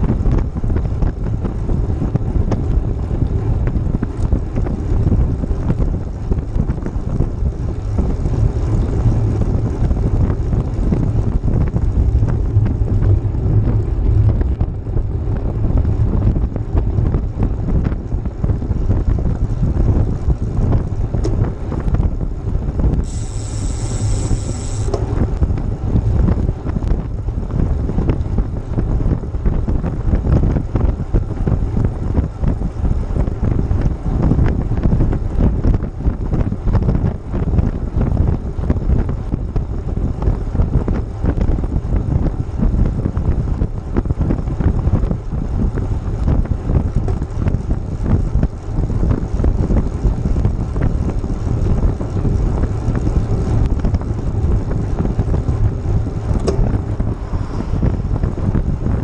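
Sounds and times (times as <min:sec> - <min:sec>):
wind buffeting microphone: 0:00.0 - 0:59.0
high hiss: 0:23.0 - 0:25.0.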